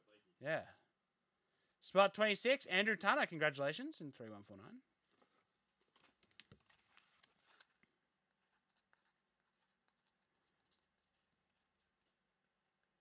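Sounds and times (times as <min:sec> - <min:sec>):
trading cards rustling: 0:05.1 - 0:11.6.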